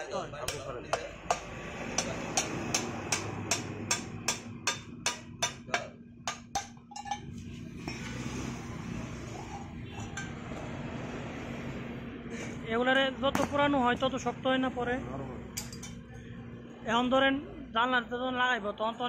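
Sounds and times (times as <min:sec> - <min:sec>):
hammer striking iron bar: 0:00.5 - 0:07.2.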